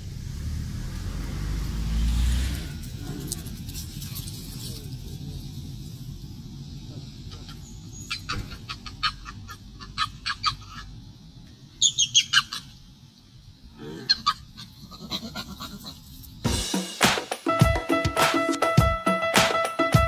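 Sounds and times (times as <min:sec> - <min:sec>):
macaques giving squeaky calls: 0:07.4 - 0:10.8, 0:11.8 - 0:12.8, 0:14.1 - 0:16.0
music: 0:16.5 - 0:20.0.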